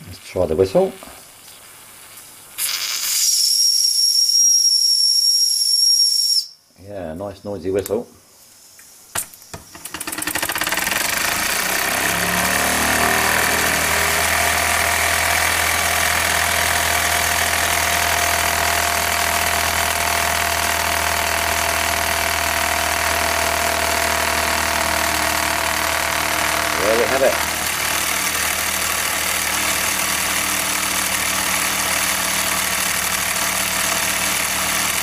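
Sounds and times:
toy steam engine running: 0:09.8 - 0:35.0.

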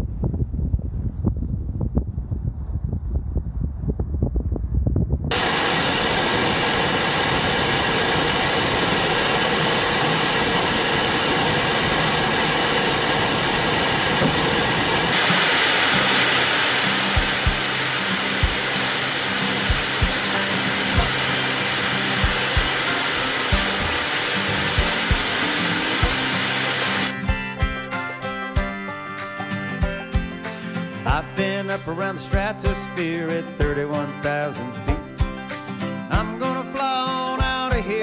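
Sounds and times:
jet engine roar with whine: 0:05.3 - 0:27.2
music with beat and bass: 0:15.1 - 0:38.0.

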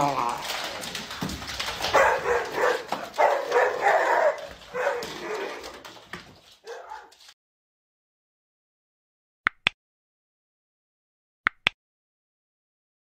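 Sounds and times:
dog barking: 0:01.8 - 0:05.8, 0:06.6 - 0:07.2.

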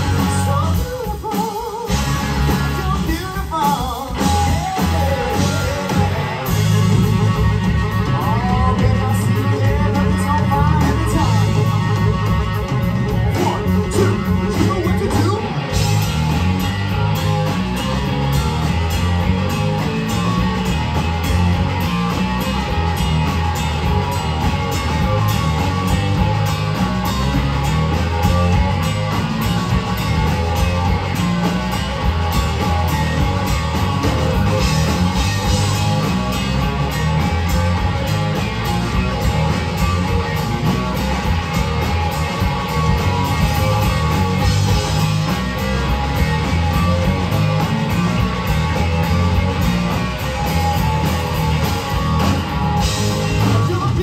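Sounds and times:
person singing: 0:00.0 - 0:15.6, 0:53.0 - 0:54.0
drum kit beat: 0:00.0 - 0:54.0
electric bass: 0:00.0 - 0:54.0
electric guitar lead: 0:00.0 - 0:54.0.

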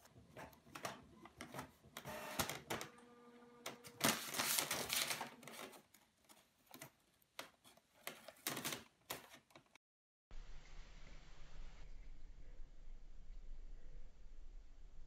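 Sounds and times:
printer mechanical whine: 0:02.0 - 0:04.2
paper feed rush: 0:03.6 - 0:05.8.

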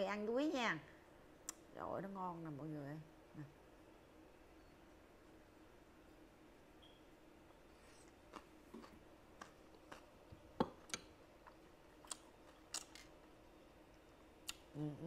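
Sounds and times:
faint steady hum: 0:00.0 - 0:15.0
wet mouth clicks chewing: 0:10.8 - 0:13.0, 0:14.4 - 0:14.8.

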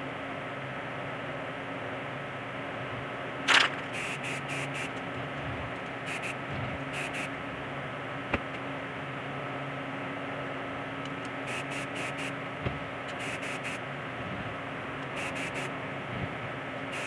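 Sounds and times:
steady hum and hiss: 0:00.0 - 0:17.0
sharp click: 0:03.5 - 0:05.0
short high hissy bursts: 0:03.5 - 0:05.0, 0:06.1 - 0:07.3, 0:11.5 - 0:12.4, 0:13.2 - 0:13.8, 0:15.1 - 0:15.7.

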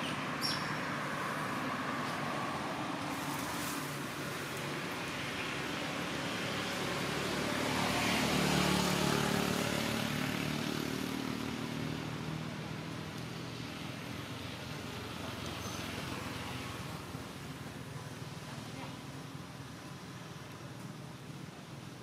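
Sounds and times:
vehicle driving past: 0:05.4 - 0:12.5.

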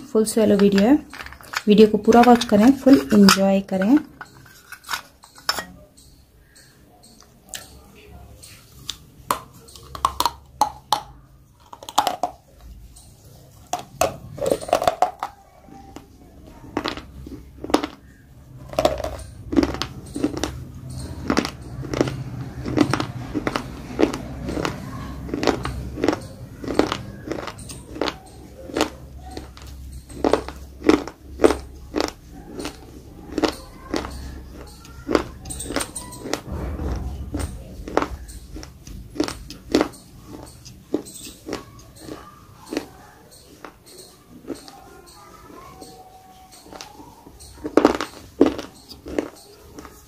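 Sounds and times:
crunchy chewing: 0:00.5 - 0:50.0
biting and crunching chalk: 0:18.7 - 0:36.9.

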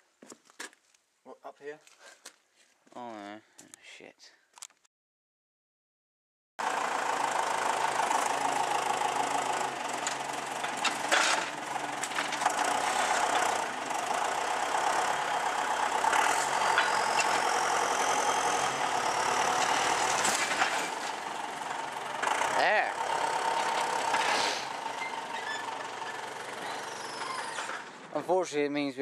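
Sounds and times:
tractor diesel engine running: 0:06.6 - 0:28.4.

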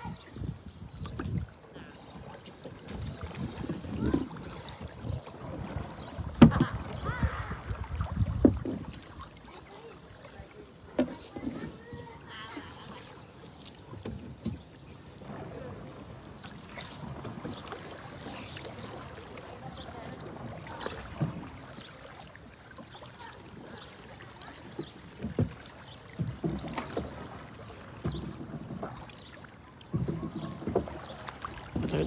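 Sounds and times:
paddle pulling through water: 0:00.0 - 0:32.0
water swishing along hull: 0:00.0 - 0:32.0.

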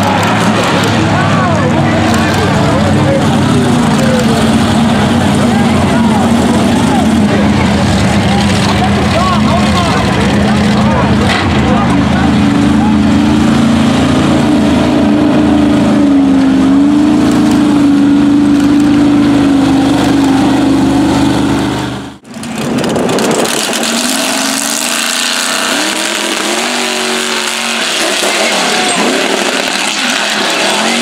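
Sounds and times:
engine revving up: 0:00.0 - 0:31.0
truck engine at high revs: 0:00.0 - 0:31.0.

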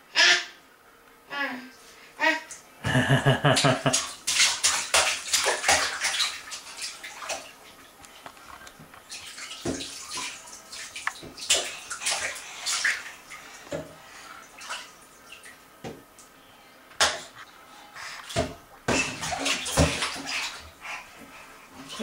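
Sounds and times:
bathwater splashing: 0:02.9 - 0:16.0, 0:18.2 - 0:22.0.

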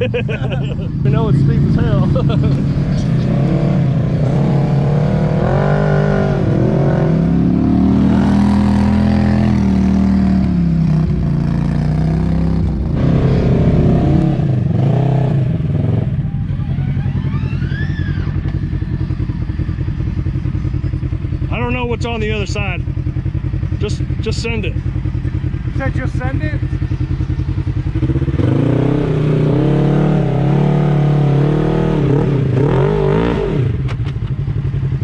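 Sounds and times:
engine revving under load: 0:00.0 - 0:24.4, 0:25.6 - 0:34.1
rising and falling whine: 0:11.9 - 0:16.0.

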